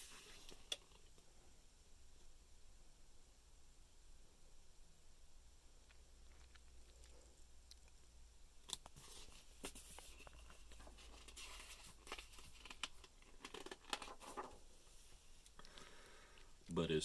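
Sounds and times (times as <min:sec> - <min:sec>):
book pages rustling and turning: 0:00.0 - 0:01.0, 0:08.7 - 0:15.5.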